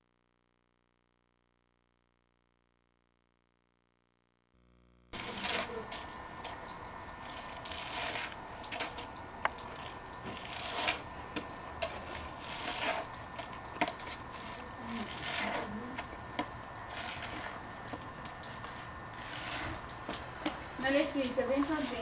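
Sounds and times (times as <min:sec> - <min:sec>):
snow shovel scraping pavement: 0:05.2 - 0:06.0, 0:07.0 - 0:09.1, 0:10.2 - 0:13.1, 0:13.8 - 0:16.0, 0:18.8 - 0:22.0.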